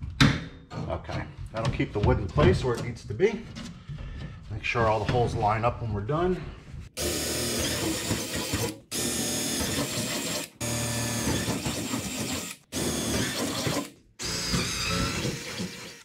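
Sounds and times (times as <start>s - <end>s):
cordless drill boring wood: 7.0s - 16.0s.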